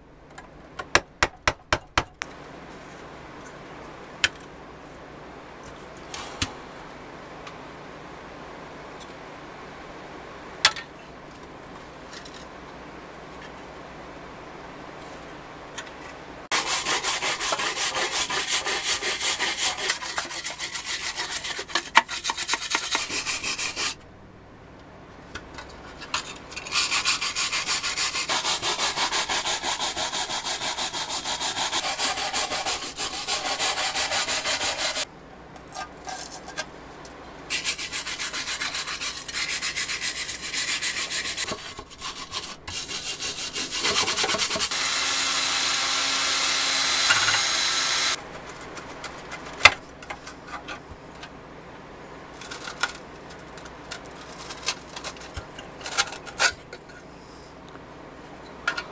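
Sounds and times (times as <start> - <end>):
sanding metal: 16.5 - 24.0, 26.6 - 35.0, 37.5 - 48.2.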